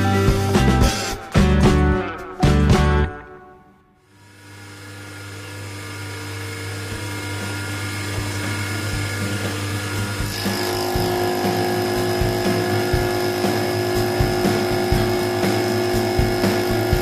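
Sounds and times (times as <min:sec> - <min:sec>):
milling machine whine: 0:04.1 - 0:17.0.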